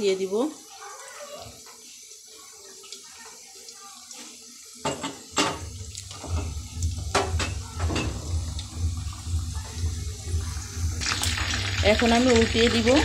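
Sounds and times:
oil bubbling and sizzling: 0.0 - 13.0
low hum: 5.7 - 13.0.

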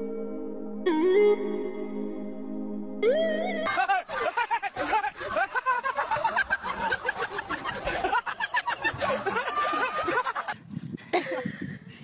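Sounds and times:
crowd laughing: 3.6 - 11.5.

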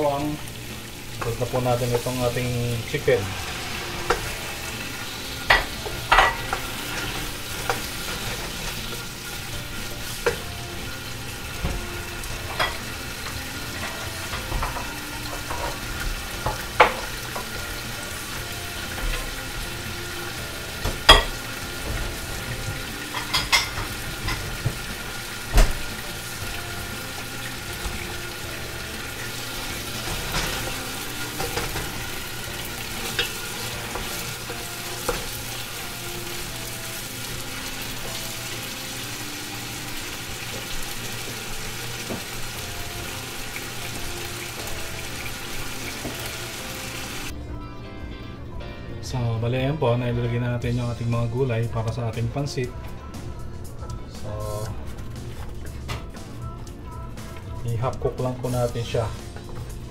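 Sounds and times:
chicken sizzling in hot oil: 0.0 - 47.4.

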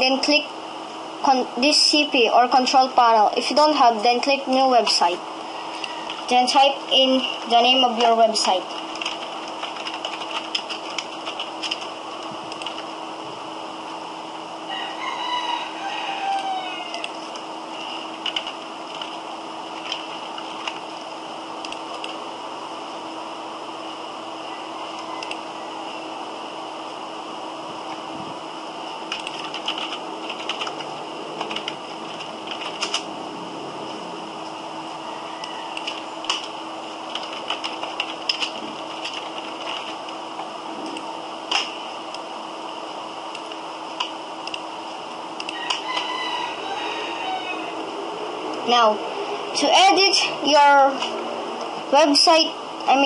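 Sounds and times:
faint steady hum: 0.0 - 53.0
keyboard keys clicking: 8.7 - 11.9, 12.5 - 12.8, 18.2 - 19.2, 19.8 - 20.8, 21.6 - 22.2, 29.1 - 33.1, 37.1 - 40.0
drawn-out tonal call: 35.0 - 35.8, 45.5 - 47.8.

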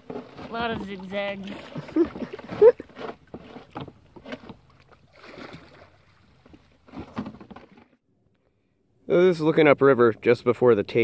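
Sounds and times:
oars knocking and splashing: 0.0 - 8.0.

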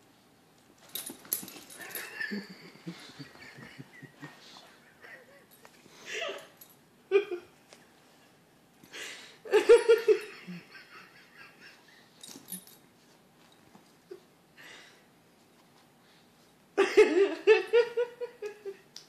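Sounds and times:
person laughing: 1.8 - 6.5, 7.1 - 7.5, 9.5 - 11.9.

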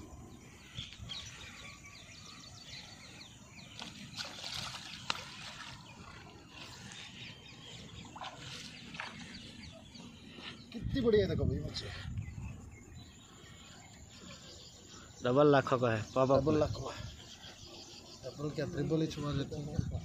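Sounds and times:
small birds chirping: 0.0 - 20.0
water sloshing and splashing: 3.6 - 10.7.

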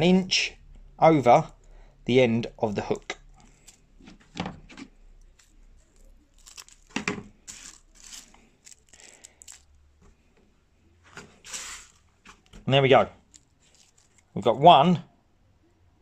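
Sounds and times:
scissors snipping foil: 6.3 - 9.6.

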